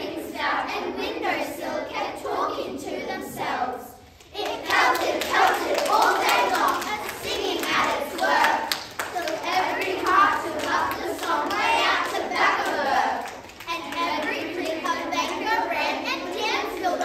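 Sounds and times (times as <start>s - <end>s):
children chanting in unison: 0.0s - 17.0s
hand claps: 4.2s - 15.0s.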